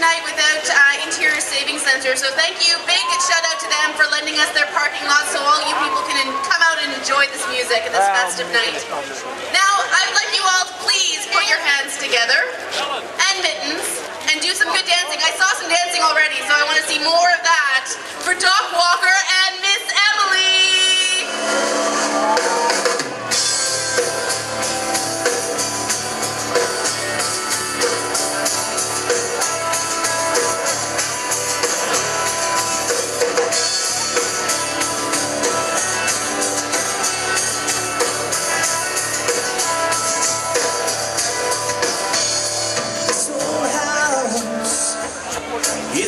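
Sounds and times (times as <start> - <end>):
country-rock band playing: 21.2 - 46.0
steady drum beat: 21.8 - 44.7.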